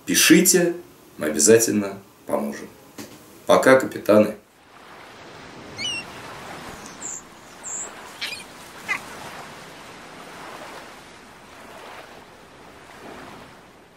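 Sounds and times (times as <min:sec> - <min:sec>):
surf washing: 0:04.5 - 0:13.9
high bird chirps: 0:05.7 - 0:09.1.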